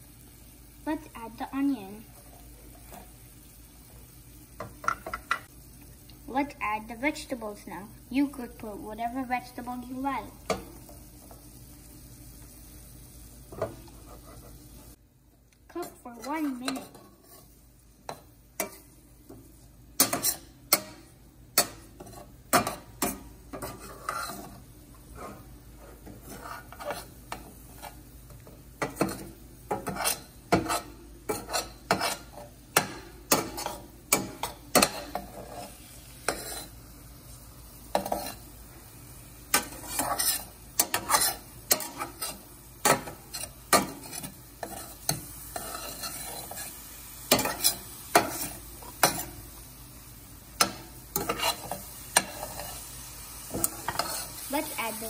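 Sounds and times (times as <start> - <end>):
food sizzling: 0.0 - 55.0
spatula scraping metal pan: 13.5 - 15.0, 15.8 - 18.9, 20.0 - 21.0, 21.6 - 36.8, 37.9 - 38.6, 39.5 - 49.5, 50.6 - 55.0.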